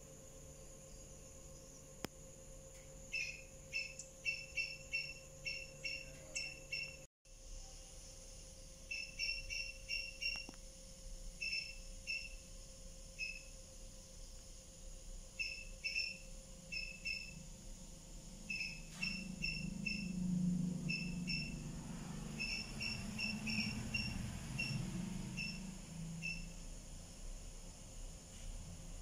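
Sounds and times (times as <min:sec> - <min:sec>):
small animal chirping: 0:03.1 - 0:07.0, 0:08.9 - 0:10.5, 0:11.4 - 0:12.5, 0:13.2 - 0:13.6, 0:15.4 - 0:17.5, 0:18.4 - 0:24.8, 0:25.4 - 0:26.6.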